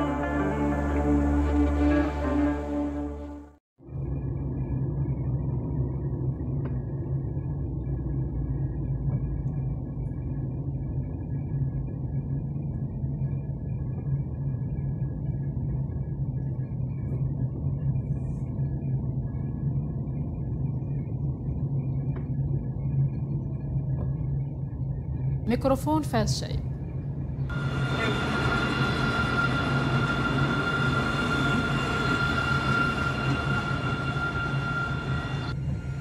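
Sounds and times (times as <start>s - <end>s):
faint high whine: 26.8s - 36.0s
tram rolling past: 27.5s - 36.0s.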